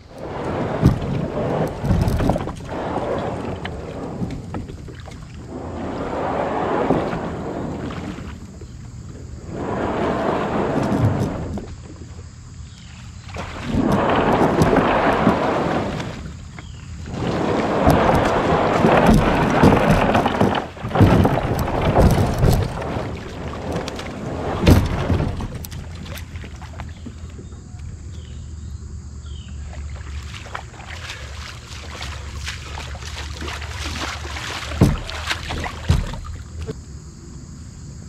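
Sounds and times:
water splashing around kayak: 0.0s - 36.8s.

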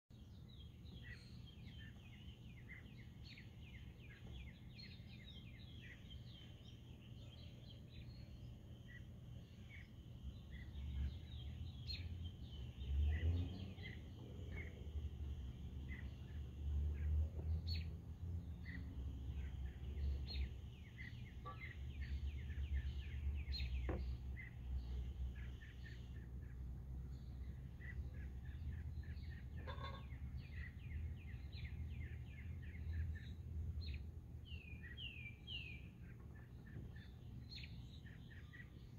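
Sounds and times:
birds chirping: 0.1s - 38.9s.

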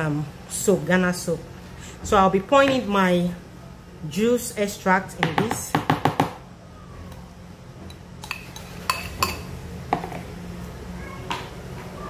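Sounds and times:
utensil clinking against bowl: 7.9s - 10.2s.

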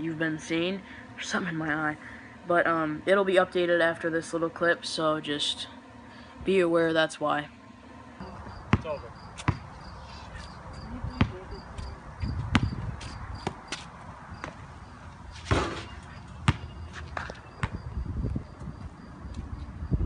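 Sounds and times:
basketball bouncing on concrete: 8.2s - 9.7s, 11.1s - 14.7s, 15.4s - 18.0s.

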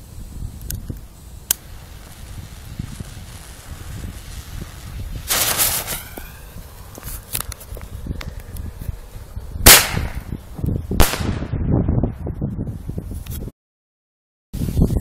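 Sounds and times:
fuse hissing: 0.0s - 9.4s
wind rumble on microphone: 0.0s - 13.6s, 14.6s - 15.0s.

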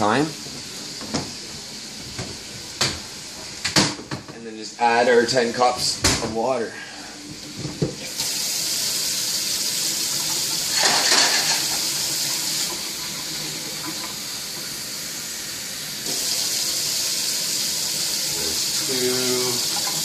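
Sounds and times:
tap water filling a cup: 7.3s - 14.8s, 16.0s - 20.0s.

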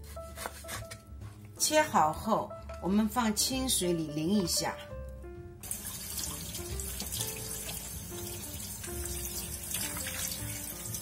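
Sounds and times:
tap water running into strainer: 5.6s - 11.0s.

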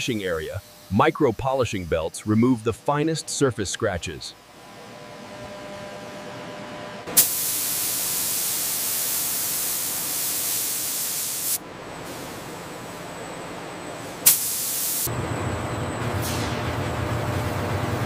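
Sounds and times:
spray nozzles hissing: 7.2s - 11.6s, 14.2s - 15.1s.

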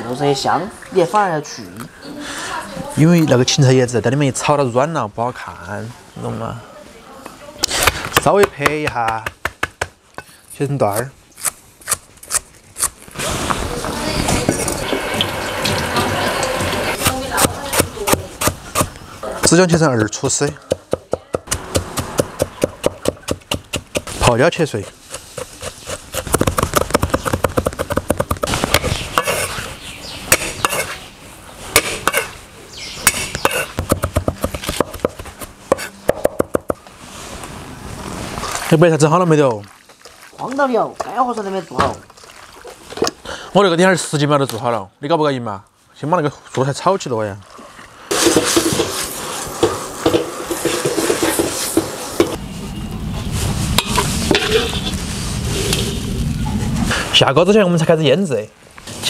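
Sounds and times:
cleaver chopping on wooden block: 20.5s - 24.1s, 30.3s - 30.9s, 33.0s - 36.8s
metal spatula scraping a wok: 48.1s - 52.4s, 53.7s - 56.0s.

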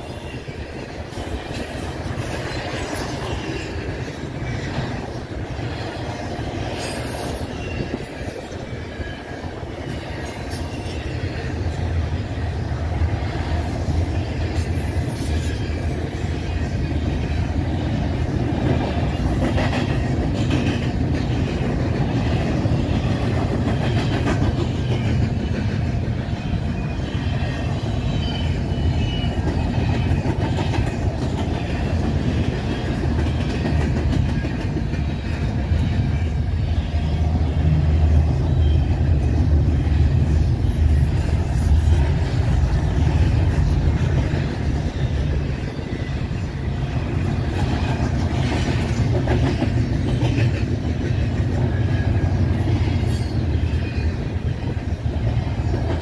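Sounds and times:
freight train rumbling past: 0.0s - 56.0s.

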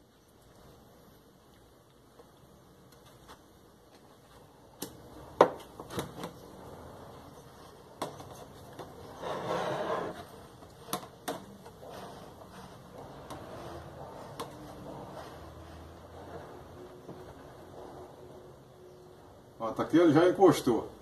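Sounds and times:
plastic scraping rub: 4.4s - 19.3s.

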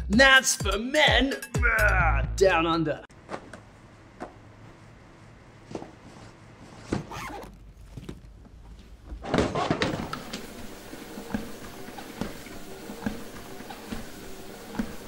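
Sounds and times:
suitcase zip pulled: 6.9s - 8.3s
footsteps on treadmill belt: 9.8s - 15.0s
treadmill humming: 9.8s - 15.0s.

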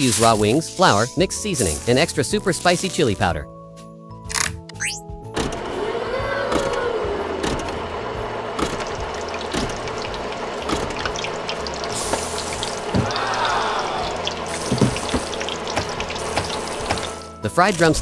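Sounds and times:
frying oil sizzling and crackling: 7.9s - 18.0s.

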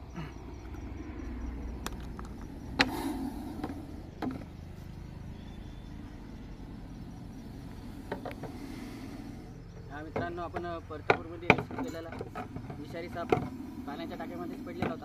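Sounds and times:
low rumble: 0.0s - 10.0s
sharp knocks: 10.1s - 13.6s.

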